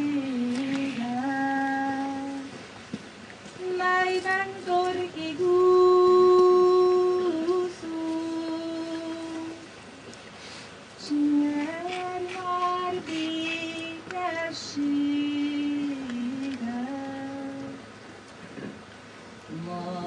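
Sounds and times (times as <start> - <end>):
woman singing unaccompanied: 0.0 - 2.6, 3.6 - 9.8, 11.0 - 18.0, 19.5 - 20.0
singer breathing: 10.3 - 10.8.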